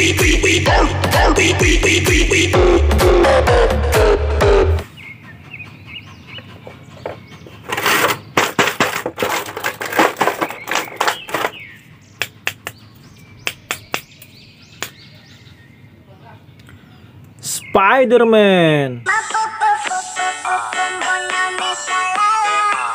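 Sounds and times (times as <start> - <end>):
plastic blister tray crinkling: 7.8 - 11.6.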